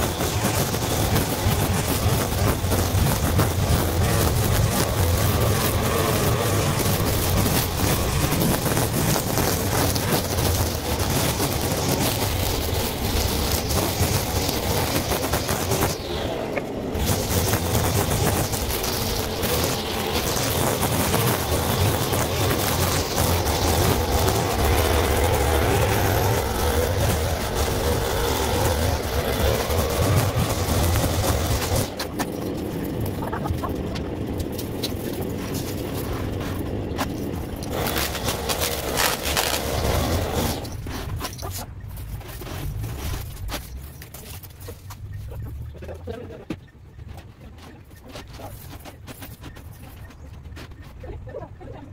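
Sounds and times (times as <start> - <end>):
brushcutter engine drone: 0.0 - 41.4.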